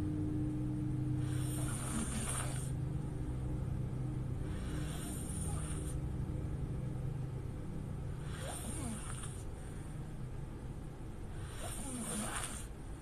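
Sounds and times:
steady low rumble: 0.0 - 13.0
woman snoring: 1.2 - 2.8, 4.4 - 6.0, 8.2 - 9.5, 11.4 - 12.8.

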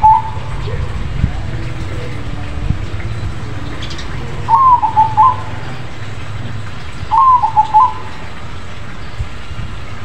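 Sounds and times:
dove cooing: 0.0 - 6.0, 7.1 - 8.1.

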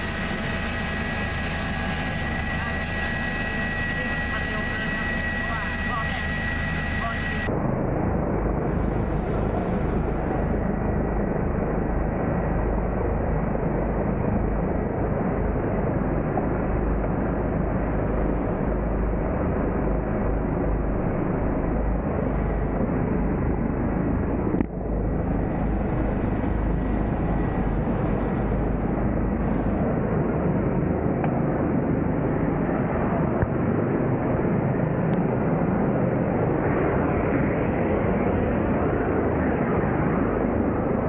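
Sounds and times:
faint high whine: 0.0 - 7.5, 17.3 - 30.0
helicopter engine and rotor: 0.0 - 41.0.

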